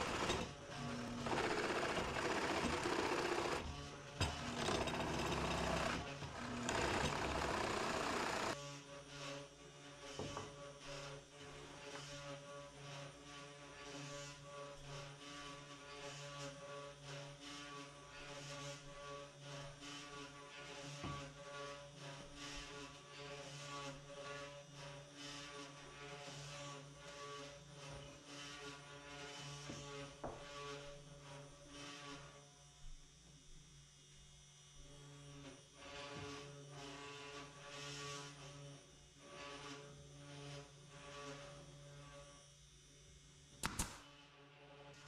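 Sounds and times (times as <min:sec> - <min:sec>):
drill press boring into wood: 0:00.0 - 0:08.6.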